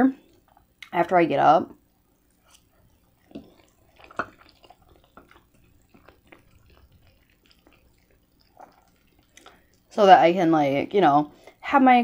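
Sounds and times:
wet chewing mouth sounds: 0:01.9 - 0:10.0
fork twirling noodles on plate: 0:02.4 - 0:09.6
small mouth clicks: 0:02.4 - 0:09.9.

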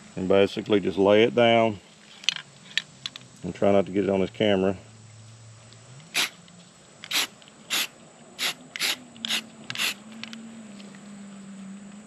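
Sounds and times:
spray can hissing: 0:06.2 - 0:06.4, 0:07.1 - 0:10.0.

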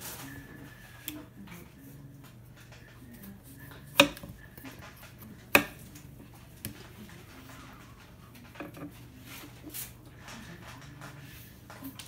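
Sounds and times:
knife striking cutting board: 0:03.9 - 0:04.3, 0:05.5 - 0:05.8.

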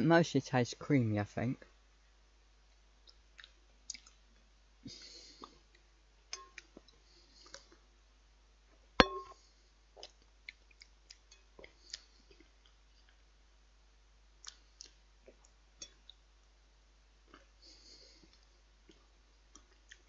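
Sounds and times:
chewing and mouth sounds: 0:03.0 - 0:04.2, 0:10.0 - 0:13.2, 0:18.1 - 0:20.0.

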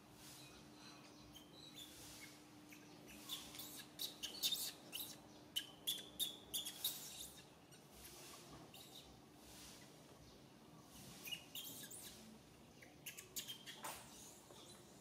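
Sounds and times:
baby monkey squealing: 0:01.4 - 0:07.8, 0:11.2 - 0:12.2, 0:13.0 - 0:14.3.

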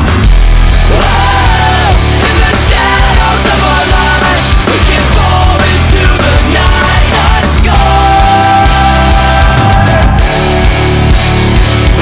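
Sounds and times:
loud hard rock music: 0:00.0 - 0:12.0.

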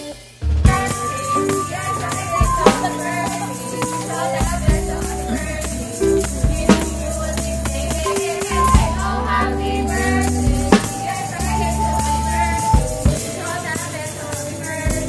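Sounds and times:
music with bass line: 0:00.4 - 0:13.6
people singing together: 0:00.7 - 0:15.0.

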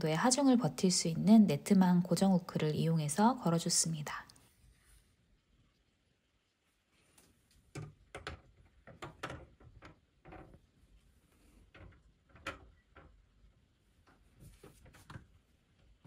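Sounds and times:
wire grid clicking and knocking: 0:07.7 - 0:16.0.

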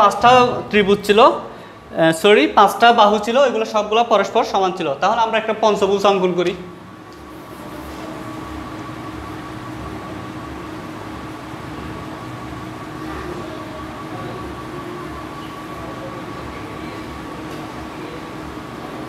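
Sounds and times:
low pulsing throb: 0:00.0 - 0:01.2
machinery humming: 0:00.0 - 0:19.0
faint high whine: 0:05.0 - 0:19.0.

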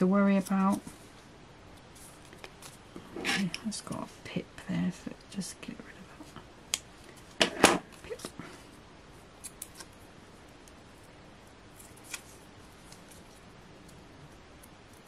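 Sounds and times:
faint clicks and paper rustles: 0:01.8 - 0:02.9, 0:11.7 - 0:14.0.

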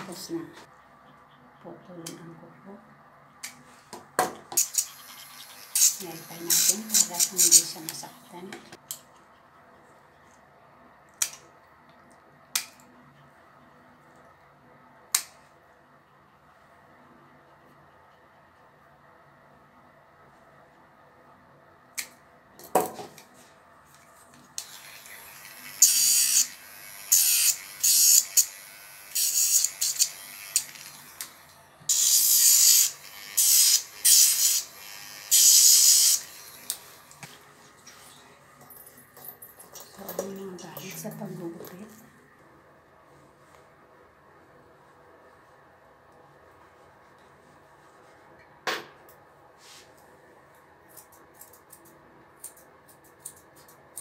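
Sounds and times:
electric nail grinder grinding: 0:04.6 - 0:08.0, 0:24.6 - 0:36.8.

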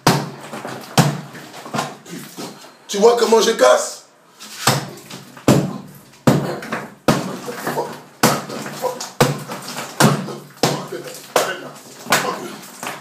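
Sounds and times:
hammer striking tiled wall: 0:04.6 - 0:13.0.

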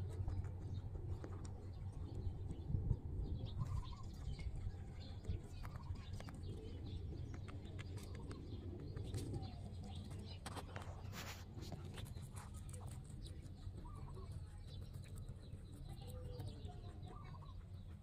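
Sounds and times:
rabbit chewing leafy stems: 0:00.0 - 0:18.0.

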